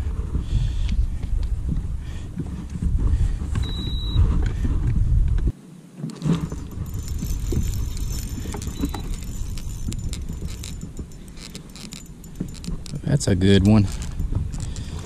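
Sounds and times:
wind buffeting microphone: 0.0 - 5.6, 6.2 - 15.0
fishing reel clicking and rattling: 6.1 - 15.0.

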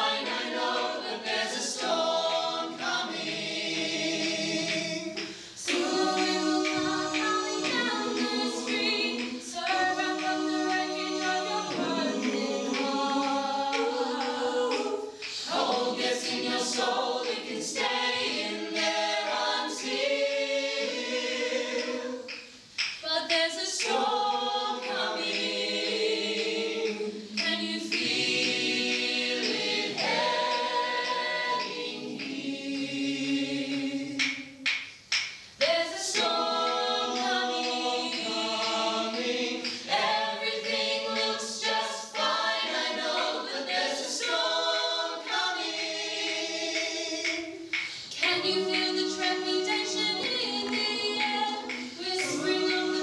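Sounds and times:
group singing in harmony: 0.0 - 34.8, 35.6 - 53.0.

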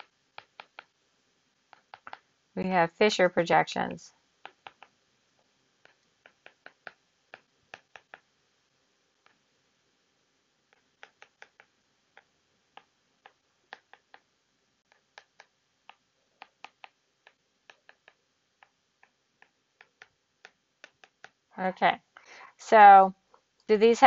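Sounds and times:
faint background hiss: 0.0 - 24.0
stylus tapping on glass screen: 5.8 - 8.3.

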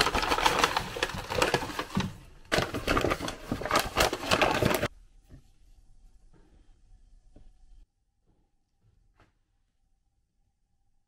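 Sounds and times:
paper and plastic bags crinkling: 0.0 - 4.9.

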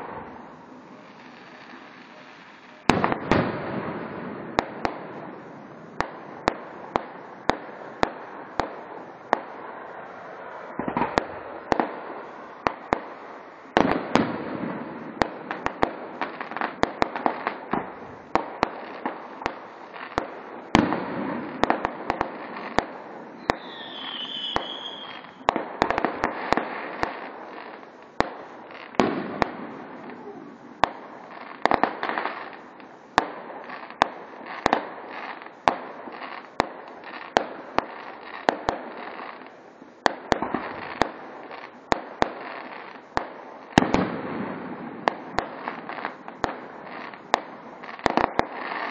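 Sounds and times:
firework shells bursting: 15.5 - 34.9.

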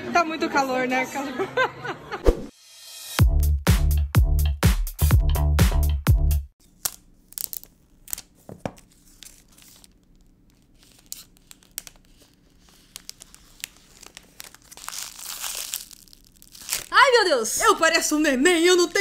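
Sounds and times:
plastic film crinkling: 6.6 - 19.0
plastic shrink-wrap tearing: 6.7 - 17.2.

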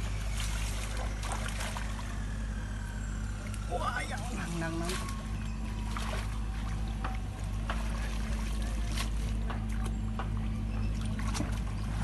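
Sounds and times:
shallow water splashing: 0.0 - 2.4, 3.2 - 12.0
steady low hum: 0.0 - 12.0.

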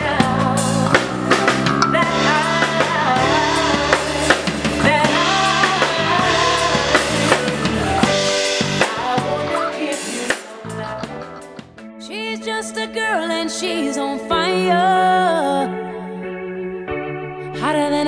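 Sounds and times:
woman singing into microphone: 0.0 - 1.2, 1.8 - 8.1, 8.8 - 11.4, 12.0 - 16.4, 17.4 - 18.0
drum kit: 0.0 - 11.8
guitar: 0.0 - 18.0.

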